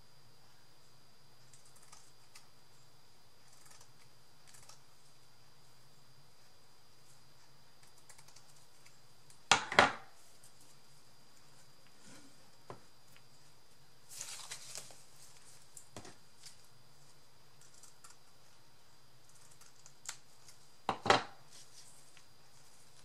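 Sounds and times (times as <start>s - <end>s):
faint steady hum: 0.0s - 23.0s
netting rustling: 14.1s - 15.7s.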